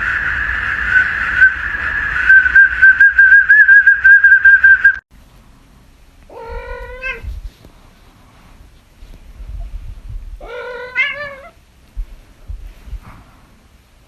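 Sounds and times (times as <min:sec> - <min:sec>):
pea whistle trilling: 0:00.0 - 0:05.0
cat meowing: 0:06.3 - 0:07.3, 0:10.4 - 0:11.6.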